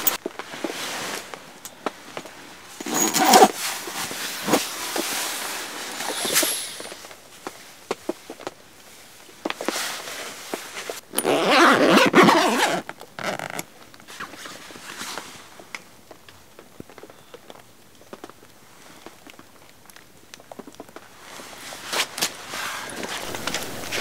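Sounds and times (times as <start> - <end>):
zipper being pulled open: 2.8 - 4.8, 5.9 - 7.0, 11.2 - 13.6
fabric rustling: 21.2 - 24.0.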